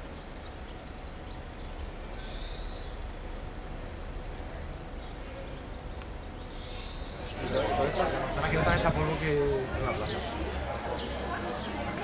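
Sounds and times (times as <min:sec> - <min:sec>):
low rumble: 0:00.0 - 0:07.5.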